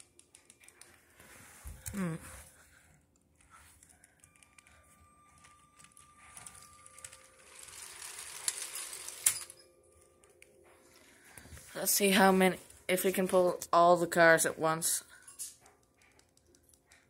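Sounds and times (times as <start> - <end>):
toy train motor whirring: 6.4 - 9.5.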